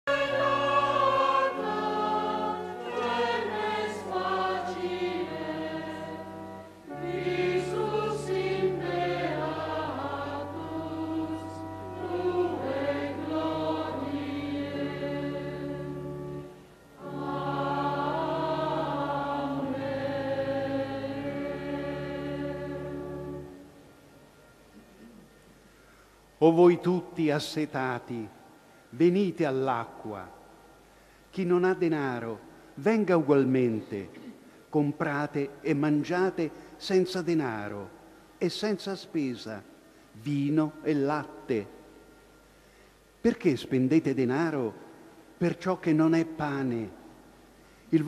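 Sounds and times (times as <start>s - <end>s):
choir singing a hymn: 0.0s - 24.0s.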